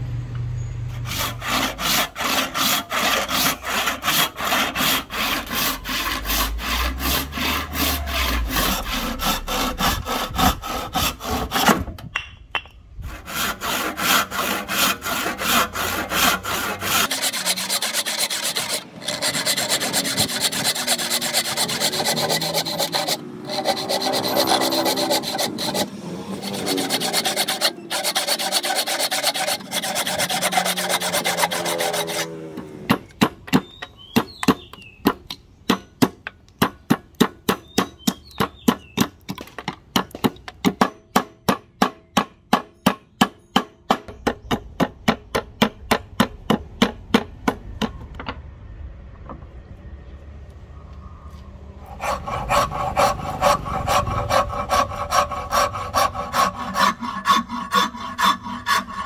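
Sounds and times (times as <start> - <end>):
hand tool strokes on wood: 13.1 - 32.7, 51.8 - 59.0.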